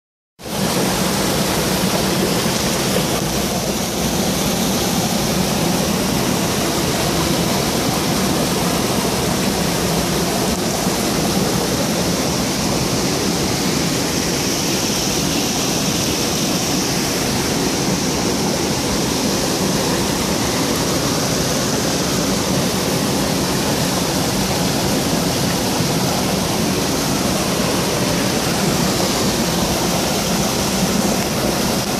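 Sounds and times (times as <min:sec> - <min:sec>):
waterfall rushing: 0:00.4 - 0:31.9.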